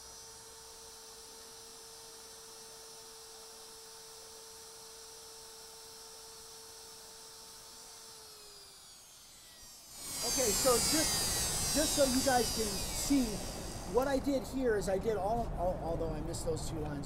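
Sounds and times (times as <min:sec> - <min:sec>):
router motor whine: 0:00.0 - 0:15.5.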